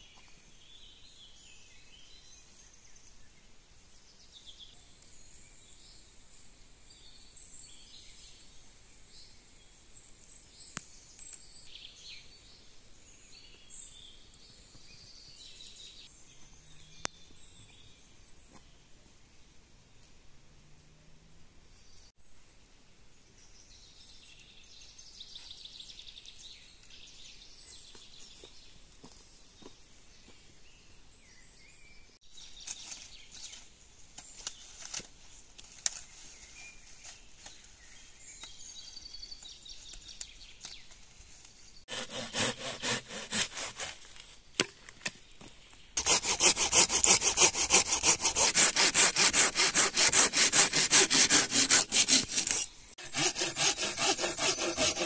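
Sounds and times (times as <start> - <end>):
hand saw cutting wood: 41.9 - 44.1, 46.0 - 55.0.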